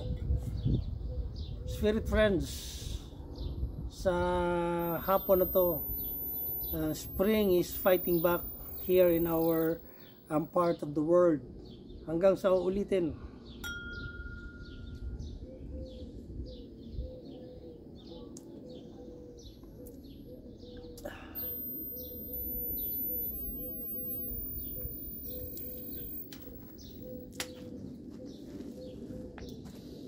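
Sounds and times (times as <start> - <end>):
birds chirping: 4.8 - 11.0, 14.9 - 27.6.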